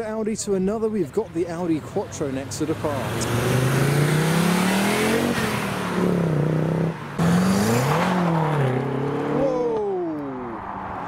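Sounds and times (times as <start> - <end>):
car engine pulling away: 1.7 - 10.6
car accelerating away: 2.4 - 10.6.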